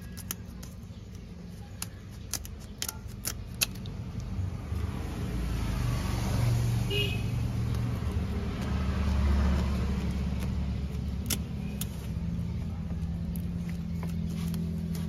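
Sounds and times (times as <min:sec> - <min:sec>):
scissors scraping fish scales: 0:00.0 - 0:04.3, 0:10.1 - 0:12.0.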